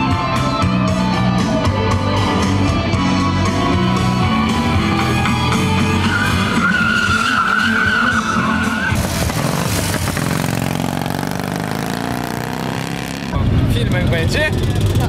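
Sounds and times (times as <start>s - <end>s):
tyre squealing on tarmac: 6.1s - 13.4s
motorcycle engine pulling away: 8.9s - 13.4s.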